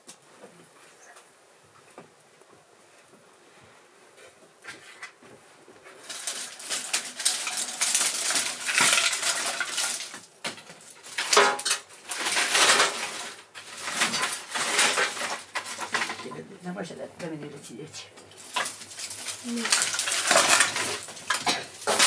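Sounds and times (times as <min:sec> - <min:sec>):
dry brushwood rustling and snapping: 0:04.2 - 0:16.5, 0:18.1 - 0:22.0.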